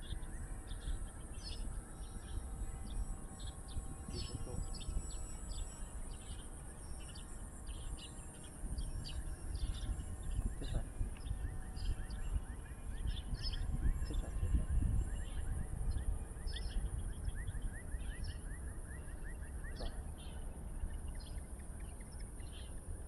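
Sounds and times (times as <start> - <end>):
small birds chirping: 0.0 - 23.0
wind rumble on microphone: 0.0 - 23.0.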